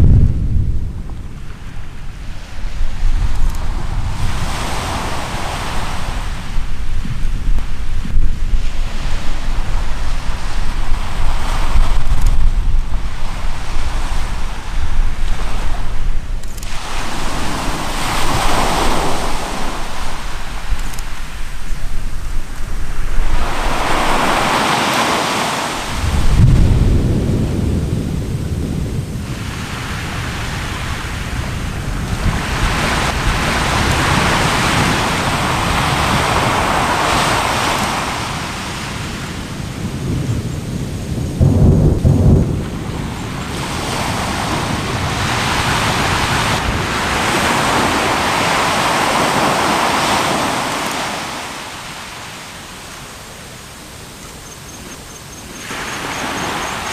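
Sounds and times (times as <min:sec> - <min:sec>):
deep volcano booms: 0:00.0 - 0:01.5, 0:25.9 - 0:30.5, 0:39.7 - 0:46.9
surf washing ashore: 0:00.0 - 0:56.9.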